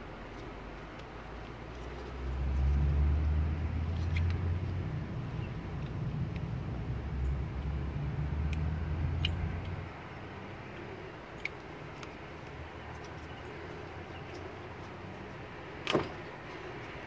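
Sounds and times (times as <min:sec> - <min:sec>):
low rumble: 0:02.3 - 0:10.0.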